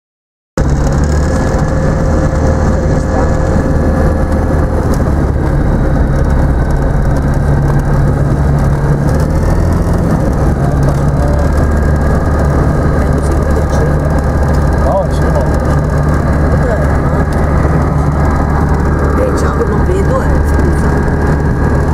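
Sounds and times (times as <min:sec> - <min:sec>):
aircraft engine and propeller: 0:00.6 - 0:21.9.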